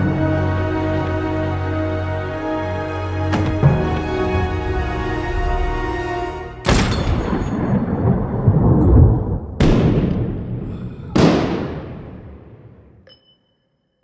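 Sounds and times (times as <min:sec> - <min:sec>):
pistol shots with booming echo: 0:11.2 - 0:12.8.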